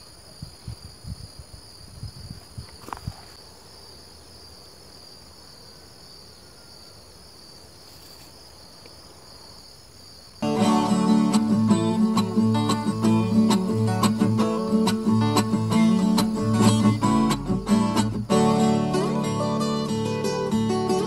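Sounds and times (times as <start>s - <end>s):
insects chirring: 0.0s - 21.0s
acoustic guitar music: 10.4s - 21.0s.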